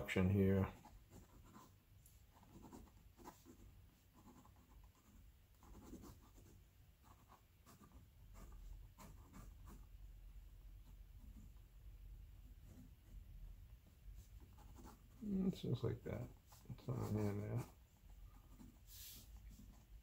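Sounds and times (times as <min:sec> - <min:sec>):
pen scratching on paper: 0:00.6 - 0:10.0, 0:12.4 - 0:13.3, 0:14.1 - 0:15.6, 0:16.4 - 0:20.0.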